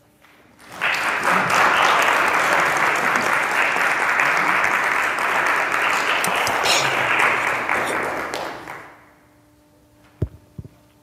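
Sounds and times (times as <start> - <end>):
audience applauding: 0.5 - 9.1.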